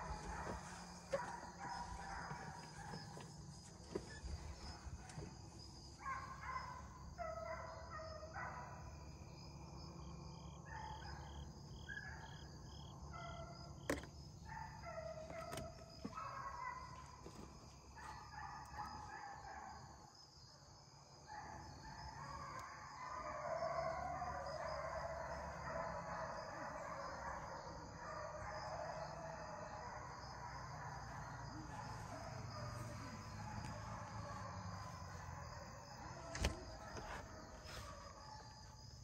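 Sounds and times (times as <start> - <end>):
hounds baying: 0.0 - 3.3, 3.9 - 8.8, 14.4 - 19.9, 21.4 - 39.0.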